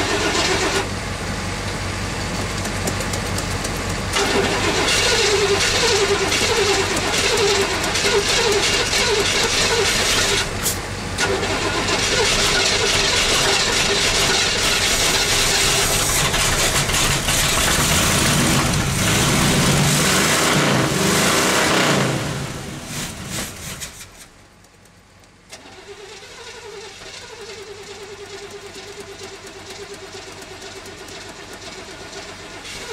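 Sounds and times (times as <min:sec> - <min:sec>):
engine starter cranking: 0:00.0 - 0:00.9, 0:02.8 - 0:19.5, 0:25.5 - 0:32.9.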